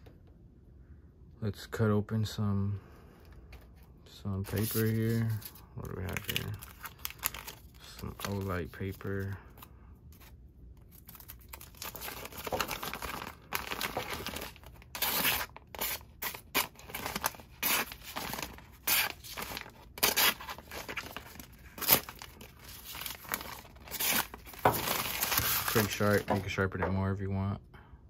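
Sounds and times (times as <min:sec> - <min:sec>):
paper rustling: 0:04.5 - 0:10.3, 0:10.9 - 0:26.6.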